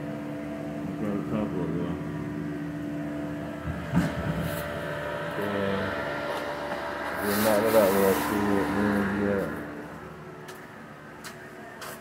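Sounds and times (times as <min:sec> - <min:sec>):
mechanical hum: 0:00.0 - 0:12.0.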